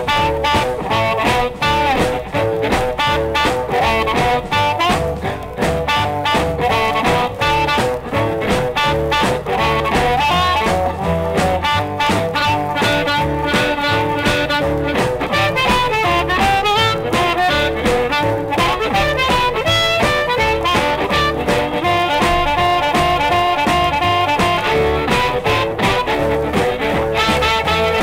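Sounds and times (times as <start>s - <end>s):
backing band guitar and bass: 0.0s - 28.0s
blues harmonica lead: 0.0s - 28.0s
shuffling drum beat: 0.0s - 28.0s.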